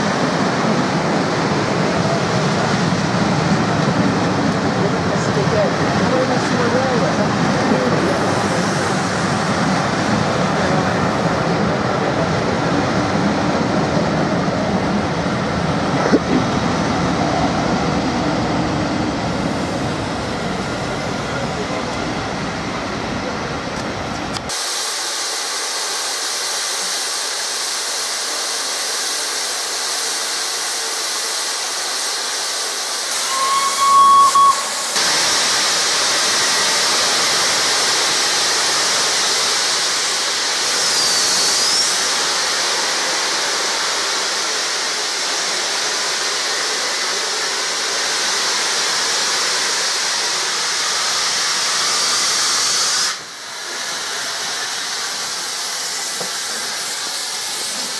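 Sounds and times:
steam locomotive hissing: 0:00.0 - 0:57.9
short whistle note: 0:33.1 - 0:35.2.

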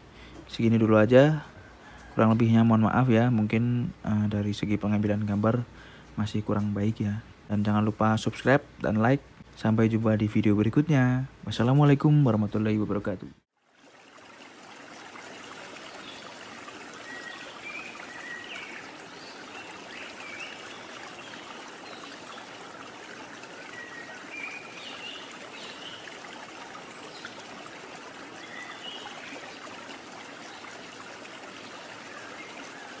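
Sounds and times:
rushing stream water: 0:13.5 - 0:33.0.

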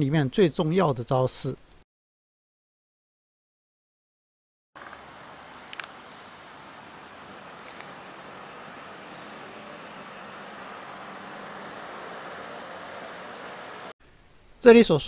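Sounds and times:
crickets chirping: 0:04.8 - 0:13.9.

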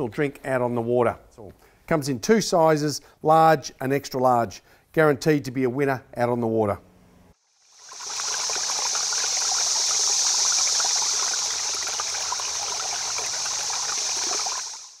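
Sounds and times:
stream water running: 0:07.4 - 0:15.0.

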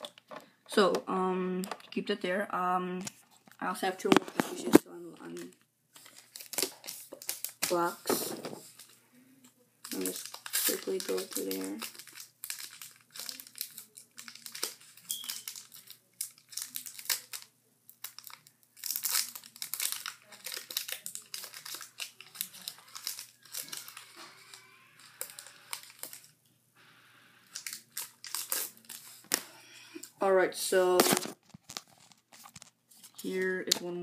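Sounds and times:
foil wrapper crinkling and tearing: 0:04.2 - 0:08.9, 0:09.8 - 0:26.3, 0:27.4 - 0:30.0, 0:31.0 - 0:33.4.

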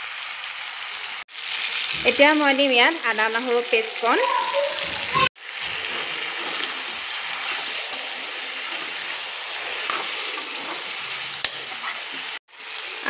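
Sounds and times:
chicken sizzling in hot oil: 0:00.0 - 0:13.0
spatula scraping a pan: 0:04.9 - 0:12.4.

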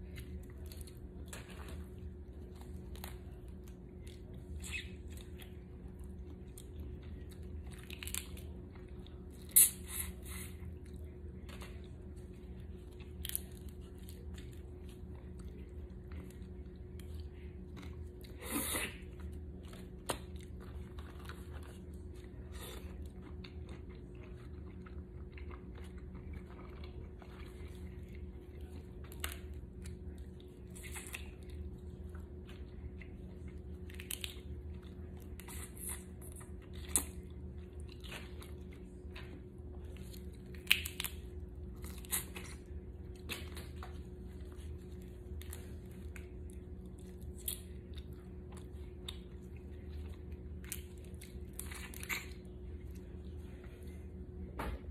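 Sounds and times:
chewing: 0:00.0 - 0:54.1
steady low hum: 0:00.0 - 0:54.9
shells cracking and snapping: 0:40.5 - 0:41.2.

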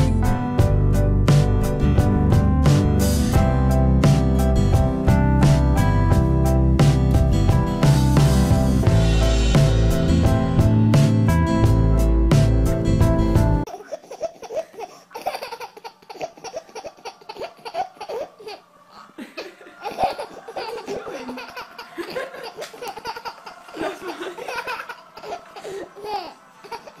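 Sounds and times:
baby laughing: 0:13.7 - 0:27.0.

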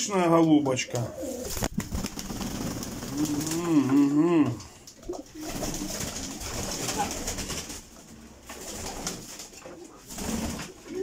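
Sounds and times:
birds rustling: 0:00.5 - 0:11.0
pigeons cooing: 0:01.0 - 0:01.5, 0:03.0 - 0:07.5, 0:09.6 - 0:11.0
wings fluttering: 0:01.2 - 0:03.8, 0:04.9 - 0:11.0.

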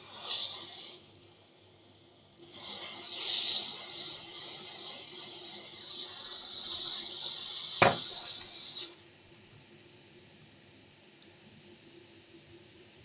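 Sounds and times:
hot air station hissing: 0:00.0 - 0:08.9.

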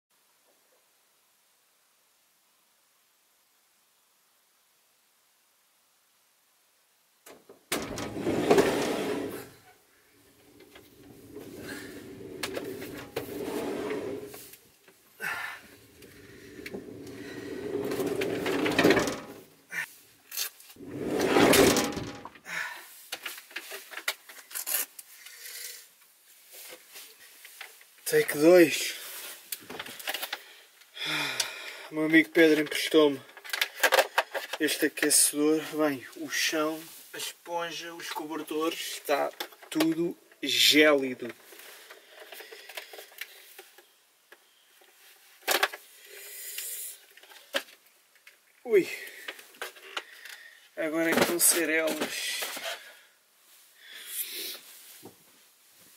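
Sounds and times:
rustling: 0:07.7 - 0:22.4
light clicks and knocks of objects: 0:23.1 - 0:25.3, 0:26.0 - 0:28.4, 0:32.4 - 0:35.2, 0:39.2 - 0:40.5.

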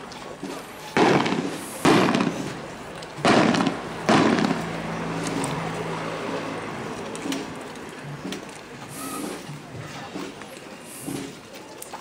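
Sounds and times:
firework rockets bursting: 0:00.8 - 0:05.5.

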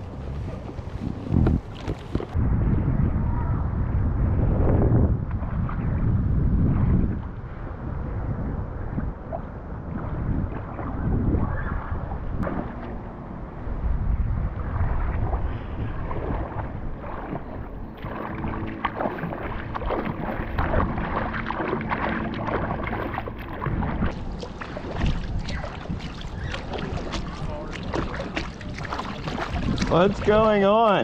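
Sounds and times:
wind rumbling on microphone: 0:00.0 - 0:31.0
river water splashing: 0:12.4 - 0:31.0.

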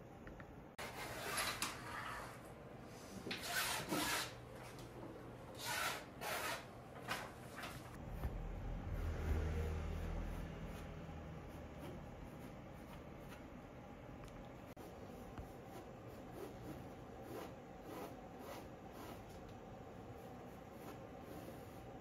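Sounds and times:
pencil scratching on canvas: 0:09.0 - 0:13.5, 0:14.7 - 0:19.4, 0:20.1 - 0:22.0.

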